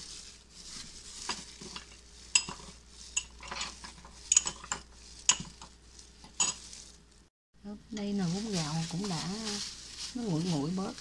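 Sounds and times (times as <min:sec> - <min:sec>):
spoon stirring sauce in bowl: 0:01.0 - 0:06.8.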